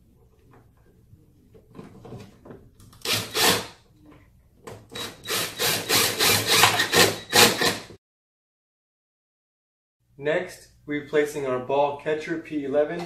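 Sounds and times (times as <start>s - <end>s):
cordless drill driving screw: 3.0s - 3.7s, 4.9s - 7.9s.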